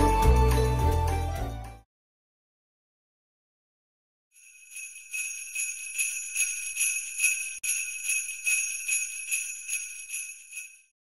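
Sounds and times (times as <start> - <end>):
sleigh bells shaken: 4.4 - 10.9.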